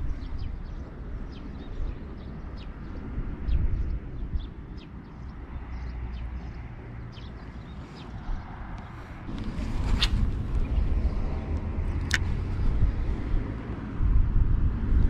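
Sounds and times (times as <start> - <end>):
small birds chirping: 0.0 - 13.4
wind rumble on microphone: 0.0 - 15.0.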